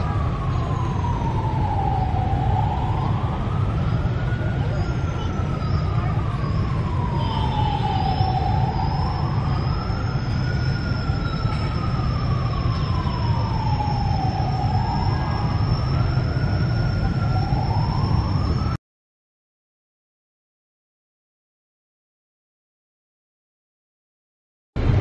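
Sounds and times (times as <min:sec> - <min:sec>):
siren wailing: 0:00.0 - 0:18.8.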